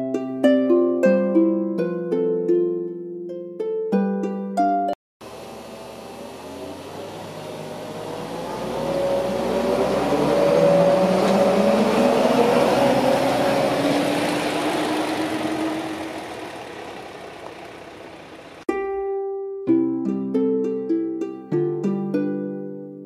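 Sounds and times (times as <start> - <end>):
rail tractor engine passing: 5.2 - 18.6.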